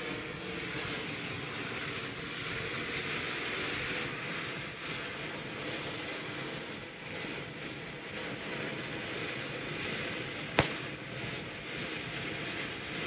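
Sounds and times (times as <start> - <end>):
firework hissing: 0.0 - 13.0
firework bang: 10.5 - 11.4.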